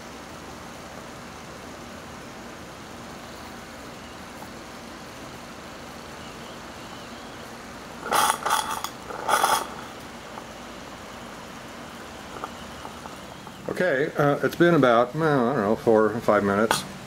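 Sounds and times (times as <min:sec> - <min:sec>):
faint steady hiss: 0:00.0 - 0:17.0
steam boiler spitting and hissing: 0:07.6 - 0:14.7.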